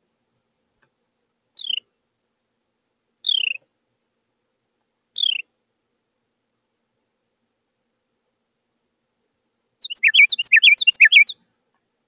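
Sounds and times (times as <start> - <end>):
bird calling with falling notes: 3.2 - 3.6, 5.2 - 5.4, 9.8 - 11.4.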